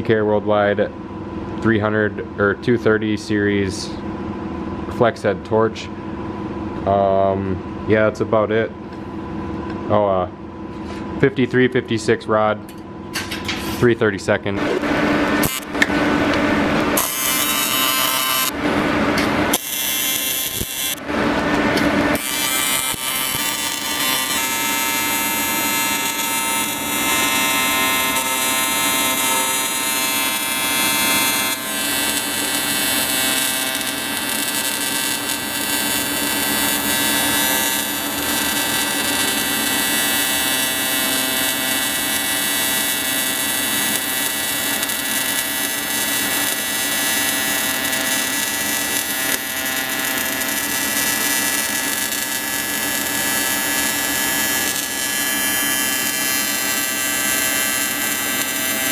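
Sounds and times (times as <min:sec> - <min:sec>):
welding arc buzzing hiss: 0:14.6 - 0:58.9.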